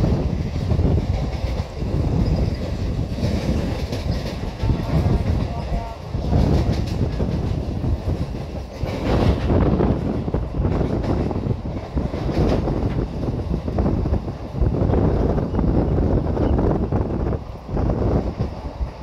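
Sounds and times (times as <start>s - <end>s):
wheels clacking over rails: 0.0s - 14.5s
train rumbling on track: 0.0s - 19.0s.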